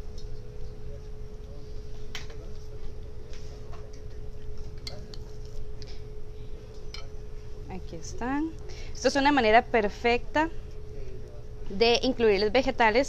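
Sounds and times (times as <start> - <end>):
steady hum: 0.0 - 13.0
light clicks and taps on glass bowl: 6.8 - 7.2.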